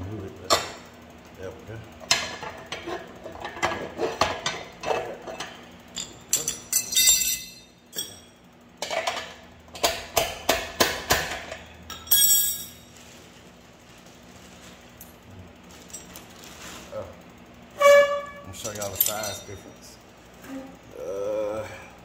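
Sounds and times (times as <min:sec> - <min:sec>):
metal sprocket clanking: 0:06.0 - 0:08.4, 0:18.5 - 0:19.7.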